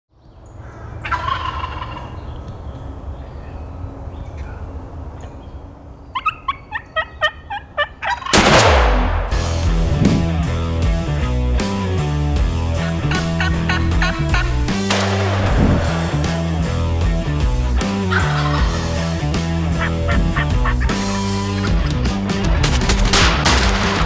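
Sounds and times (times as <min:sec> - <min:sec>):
turkey gobbling: 0:01.0 - 0:02.2, 0:06.1 - 0:08.4, 0:12.8 - 0:14.6, 0:17.8 - 0:18.9, 0:19.7 - 0:21.8
loud shotgun blast: 0:08.3 - 0:09.6, 0:14.9 - 0:16.1
music: 0:08.4 - 0:24.0.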